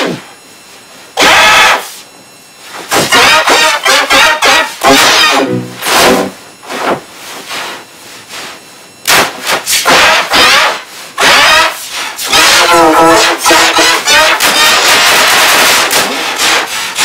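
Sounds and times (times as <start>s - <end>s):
banging noise: 2.7s - 7.1s
processed screaming: 9.9s - 15.1s.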